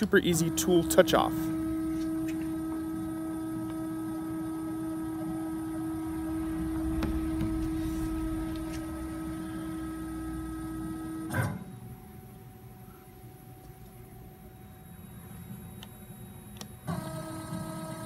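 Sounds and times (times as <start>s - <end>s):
router drive whining: 0.0s - 11.4s.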